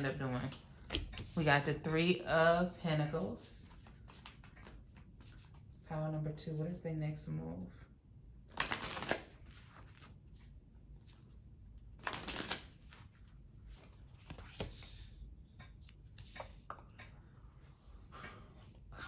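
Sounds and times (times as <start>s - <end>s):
cards being shuffled: 8.5s - 10.2s, 12.0s - 15.0s.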